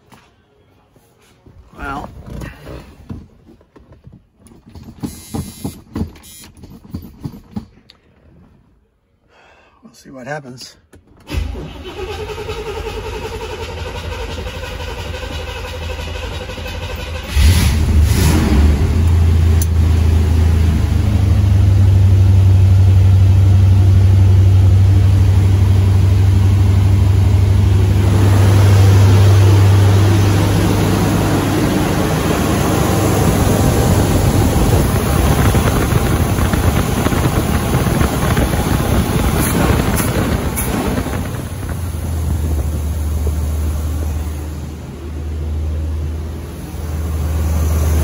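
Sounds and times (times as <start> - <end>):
starter cranking engine: 11.2 - 18.4
v eight engine running: 11.3 - 48.0.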